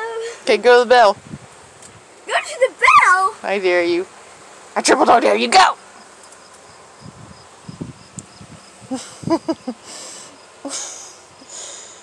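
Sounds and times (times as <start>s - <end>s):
insects chirping: 0.0s - 12.0s
voice-like laughing: 8.9s - 10.0s.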